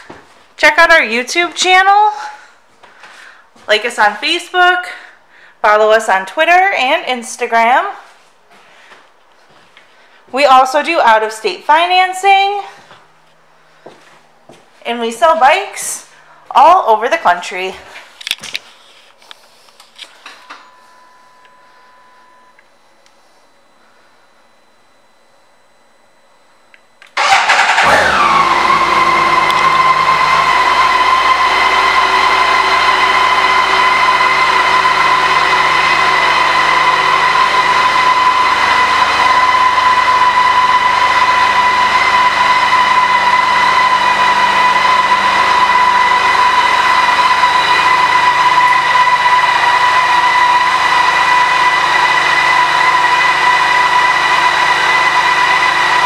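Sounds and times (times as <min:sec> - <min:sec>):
motorcycle engine starting and idling: 0:27.1 - 0:53.8.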